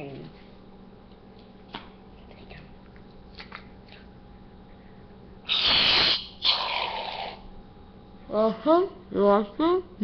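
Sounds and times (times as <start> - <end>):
aerosol can hissing spurts: 5.5 - 6.3.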